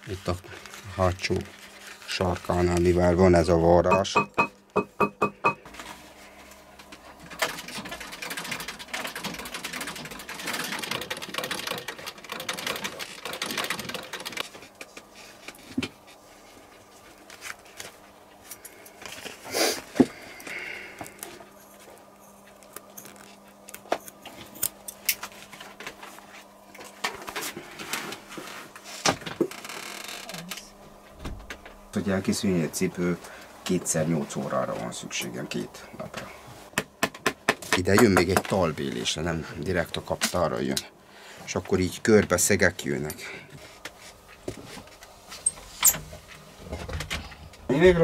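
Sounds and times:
sewing machine rattling: 0:07.2 - 0:14.4.

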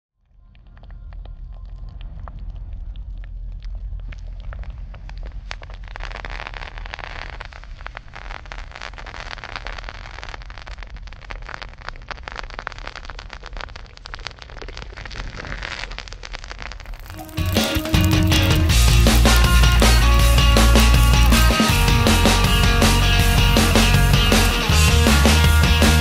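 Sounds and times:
low steady rumble: 0:00.2 - 0:08.2, 0:18.0 - 0:24.9
molten salt sizzling and crackling: 0:00.2 - 0:26.0.

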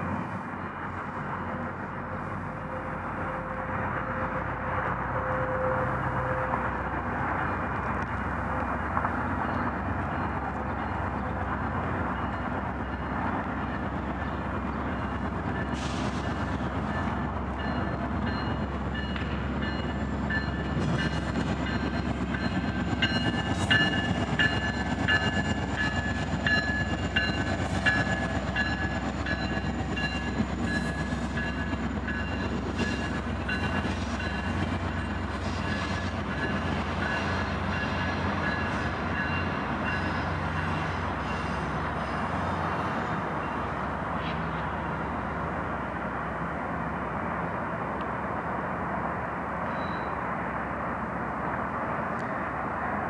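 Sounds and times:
locomotive engine drone: 0:00.0 - 0:53.0
train wheels rumbling on rails: 0:00.0 - 0:53.0
high wheel squeal: 0:49.7 - 0:50.2.

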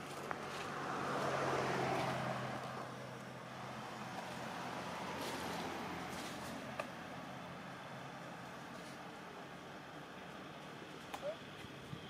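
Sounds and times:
vehicle passing by: 0:00.0 - 0:09.5.

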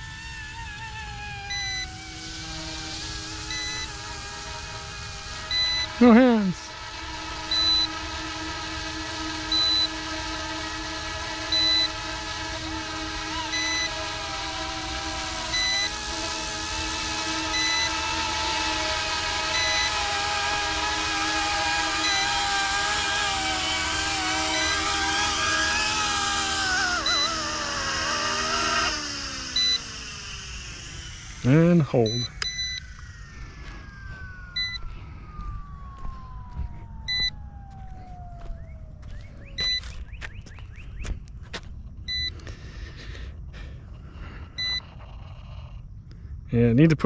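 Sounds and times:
rc helicopter rotor whine: 0:00.0 - 0:47.0
short electronic beep: 0:32.0 - 0:32.8, 0:34.6 - 0:34.8, 0:39.6 - 0:39.8.

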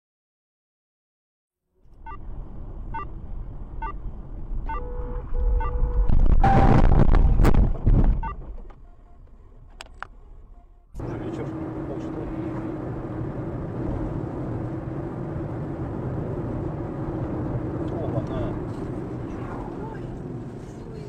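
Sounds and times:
car cruising on highway: 0:01.8 - 0:21.0
crash with heavy rumble: 0:06.1 - 0:08.5.

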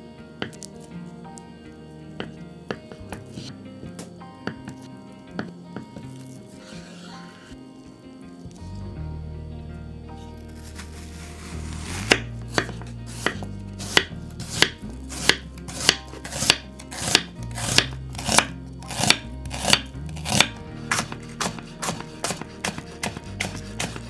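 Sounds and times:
knife chopping on wooden board: 0:12.0 - 0:24.0.

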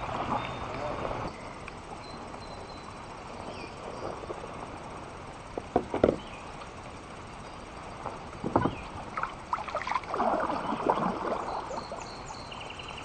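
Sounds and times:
paddle knocking on kayak hull: 0:05.6 - 0:06.2, 0:08.4 - 0:08.9.

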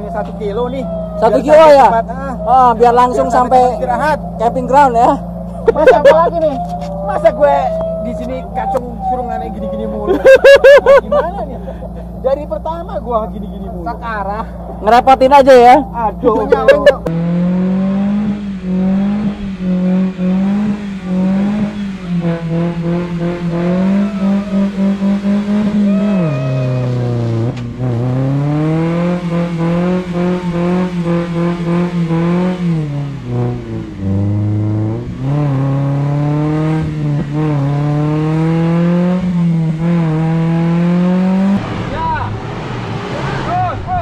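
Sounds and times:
engine revving hard: 0:16.4 - 0:44.0.

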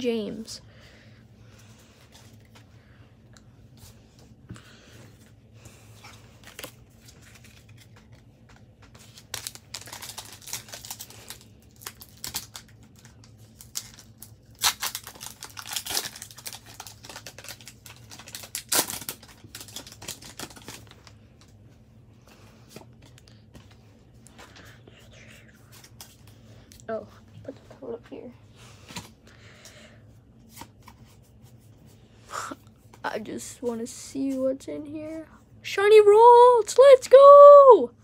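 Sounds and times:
cards rustling: 0:05.9 - 0:21.6
foil pack crinkling and tearing: 0:06.4 - 0:08.2, 0:08.9 - 0:21.2.

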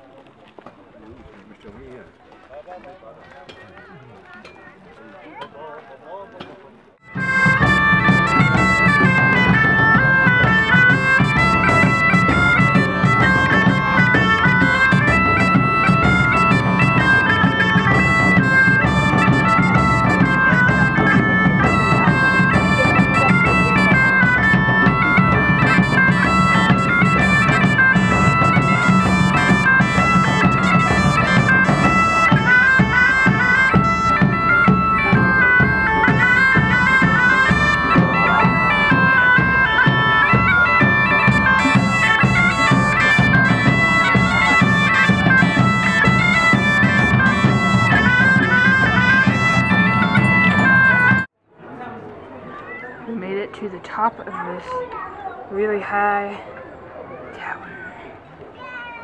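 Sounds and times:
bagpipes playing: 0:07.0 - 0:51.3
large drum beating: 0:07.0 - 0:51.3.

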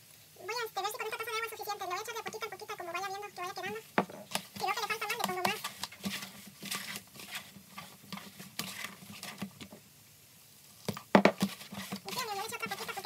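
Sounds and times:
hands squishing dough: 0:00.9 - 0:09.8, 0:10.7 - 0:13.0
knock: 0:04.0 - 0:04.3, 0:11.1 - 0:11.5.

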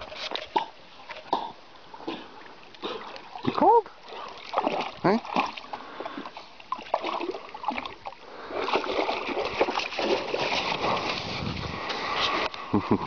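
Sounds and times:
dog splashing through water: 0:02.3 - 0:12.2.

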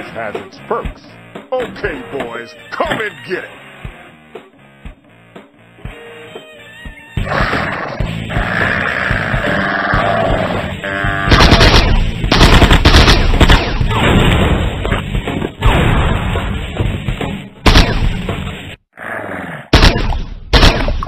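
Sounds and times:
background music: 0:00.0 - 0:18.8
cartoon gunfire blasts: 0:11.2 - 0:14.7, 0:17.6 - 0:18.2, 0:19.7 - 0:21.0.

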